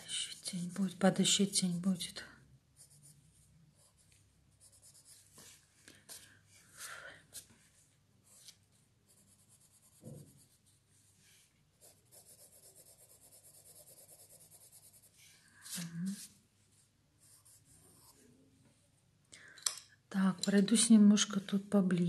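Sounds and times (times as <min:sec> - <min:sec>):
pencil shading on paper: 0:02.8 - 0:05.3, 0:09.1 - 0:10.8, 0:11.8 - 0:15.2, 0:17.2 - 0:18.2.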